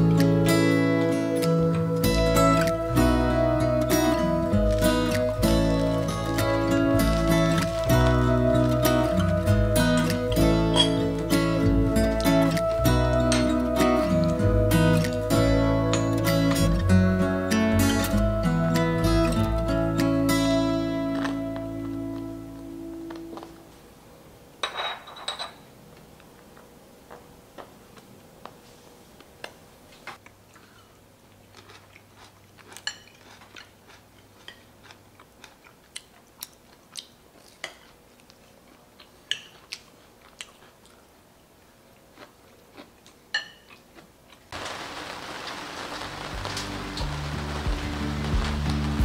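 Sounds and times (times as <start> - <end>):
background music: 0.0 - 23.5, 46.0 - 49.0
cutlery clinking on plate and dish: 10.7 - 11.0, 24.6 - 25.7, 32.8 - 33.7, 39.3 - 39.6, 43.4 - 43.7.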